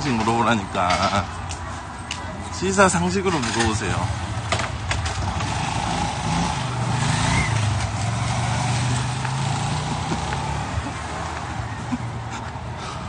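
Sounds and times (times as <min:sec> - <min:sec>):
traffic noise: 0:00.0 - 0:13.0
vehicle engine running close: 0:03.4 - 0:13.0.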